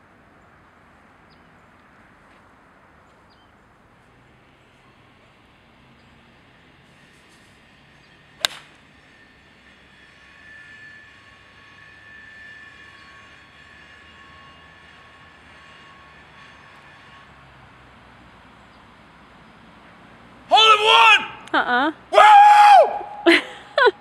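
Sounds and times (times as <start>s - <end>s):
golf club striking ball: 8.4s - 8.8s.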